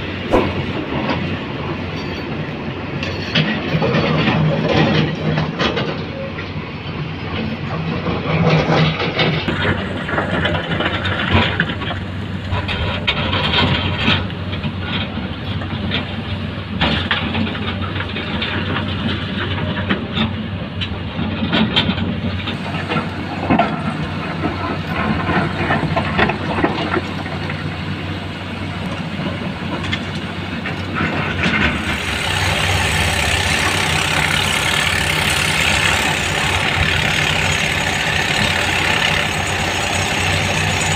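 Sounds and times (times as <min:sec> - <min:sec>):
diesel truck engine running: 0:03.8 - 0:40.9.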